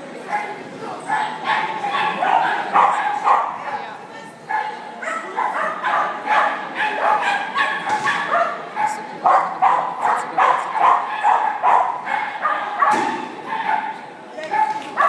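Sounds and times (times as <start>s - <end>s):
dog yipping: 4.5s - 14.9s.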